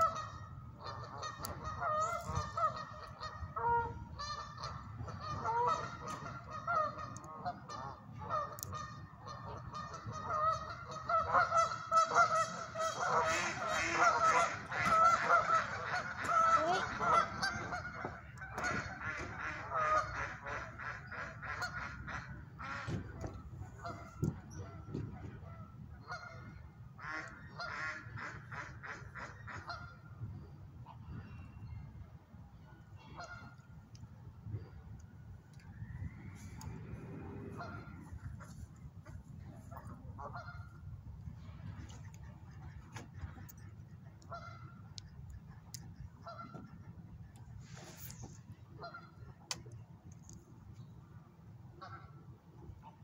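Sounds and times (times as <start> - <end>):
geese honking: 0.0 - 30.0, 33.0 - 33.7, 37.5 - 40.9, 41.8 - 47.0, 48.8 - 49.5, 51.8 - 52.2.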